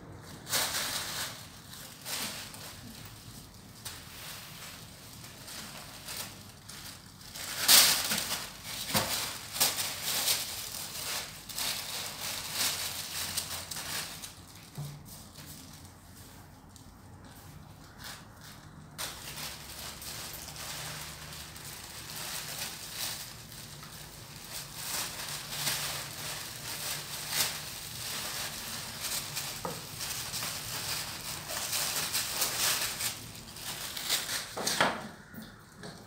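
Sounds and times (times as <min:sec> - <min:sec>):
crinkly sheet rustling and crackling: 0:00.1 - 0:36.0.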